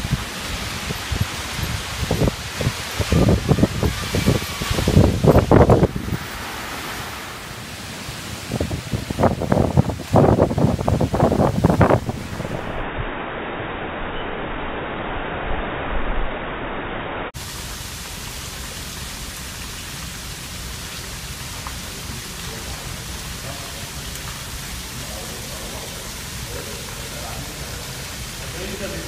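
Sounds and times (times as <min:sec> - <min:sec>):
rain falling on floodwater: 0:00.0 - 0:12.8, 0:17.4 - 0:29.0
heavy storm rain: 0:00.0 - 0:29.0.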